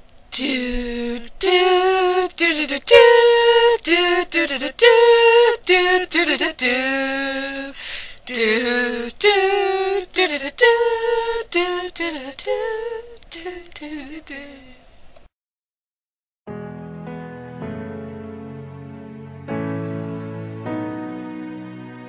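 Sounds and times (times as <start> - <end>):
woman singing unaccompanied: 0.3 - 14.8.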